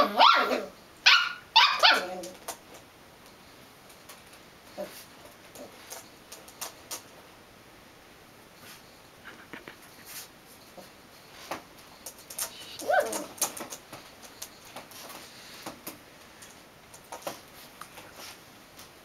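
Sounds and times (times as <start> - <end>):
paws tapping and scratching mirror: 11.4 - 18.3.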